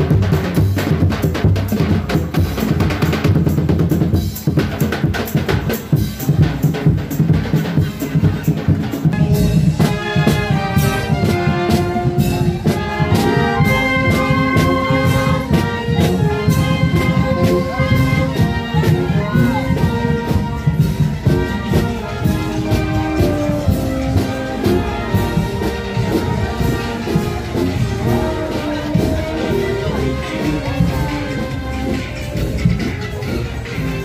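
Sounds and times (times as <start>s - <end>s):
drumbeat: 0.0s - 34.0s
marching brass band: 0.0s - 34.0s.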